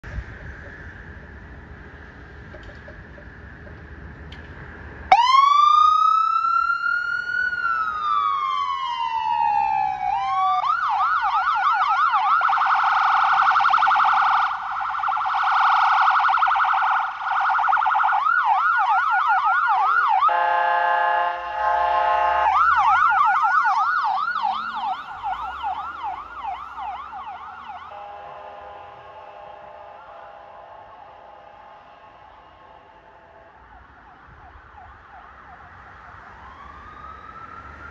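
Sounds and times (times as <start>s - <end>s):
ambulance siren wailing and yelping: 5.1s - 28.0s, 33.7s - 37.9s
steady blaring horn tone: 19.9s - 26.2s, 27.1s - 33.8s.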